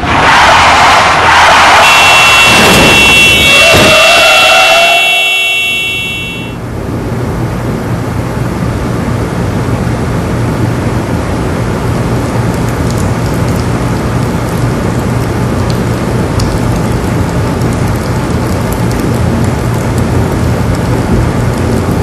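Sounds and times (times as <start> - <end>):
high multi-toned sound: 5.0 - 6.6.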